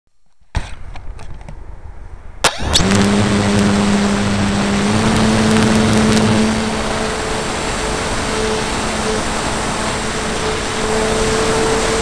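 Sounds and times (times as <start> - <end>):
rushing air noise: 1.8 - 12.0
electric motor whine: 2.5 - 12.0.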